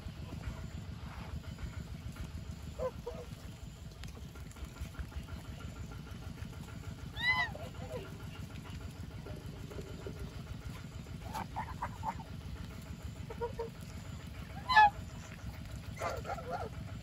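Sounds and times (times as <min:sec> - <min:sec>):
geese honking: 0:02.7 - 0:03.6, 0:07.1 - 0:08.7, 0:09.3 - 0:17.0.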